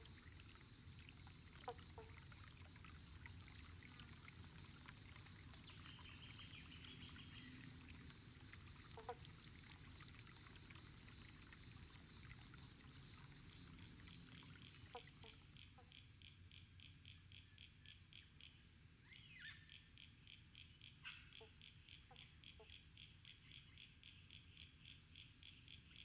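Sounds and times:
steady high hiss: 0.0 - 15.8
soft drip-like plink: 0.0 - 17.0.

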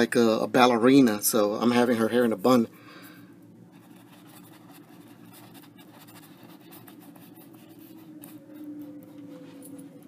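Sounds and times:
low steady hum: 0.0 - 10.0
paintbrush scratching on canvas: 3.8 - 8.4.

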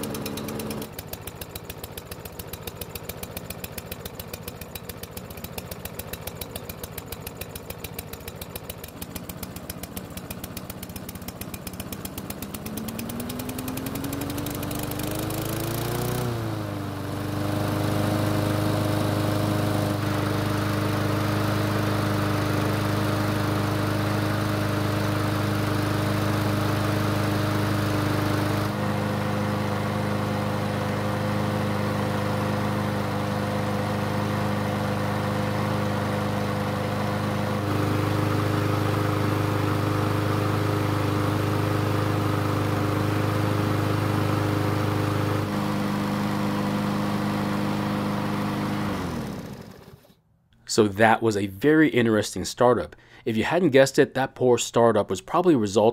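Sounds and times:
push mower engine running: 0.0 - 50.2.

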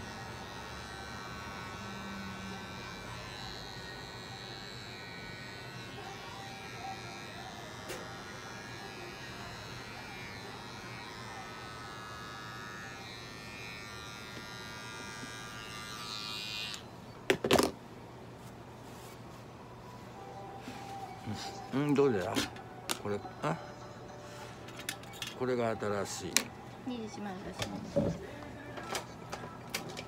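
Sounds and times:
pet hair clipper buzzing: 0.0 - 16.9.

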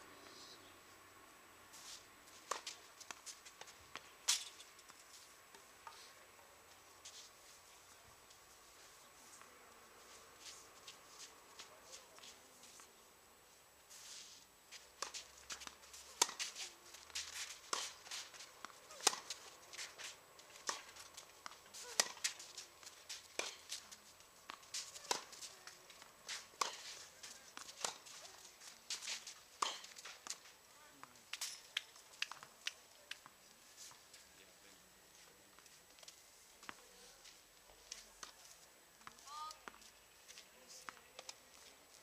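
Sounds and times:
tennis ball bounces: 2.4 - 4.5, 15.0 - 16.5, 18.6 - 19.4, 20.6 - 22.4, 23.3 - 23.8, 24.4 - 26.9, 27.5 - 28.2, 29.6 - 30.4
tennis racket hits: 15.0 - 23.8, 26.3 - 28.2, 29.0 - 30.4.

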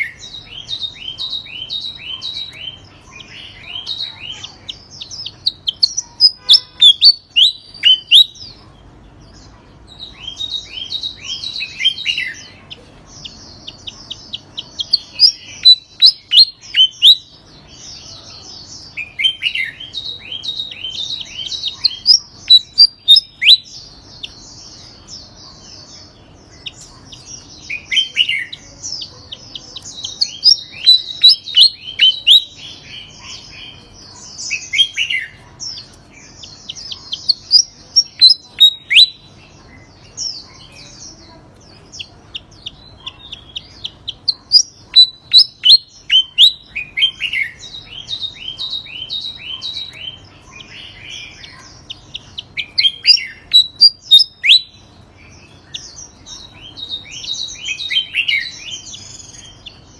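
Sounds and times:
bird singing high sharp notes: 0.0 - 8.6.

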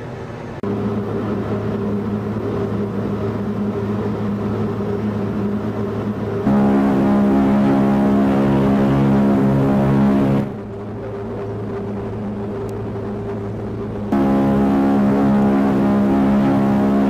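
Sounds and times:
ship's horn low note: 5.4 - 10.8, 14.0 - 17.0.

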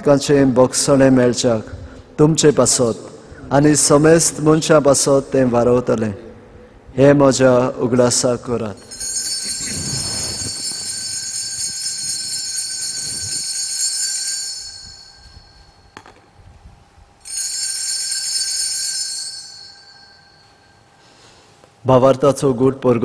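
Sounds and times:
altar bells ringing: 8.4 - 16.0, 17.2 - 21.5.

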